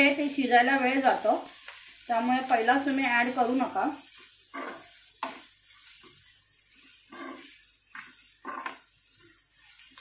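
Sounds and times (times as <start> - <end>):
onions sizzling in oil: 0.0 - 10.0
spatula scraping a pan: 0.0 - 10.0
spatula tapping a pan: 1.4 - 10.0.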